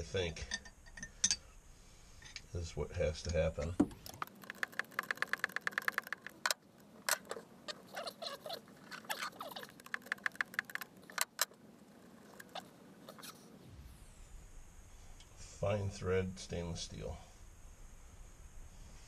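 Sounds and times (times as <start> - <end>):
ratcheting wrench clicking: 3.9 - 7.3, 9.8 - 11.6.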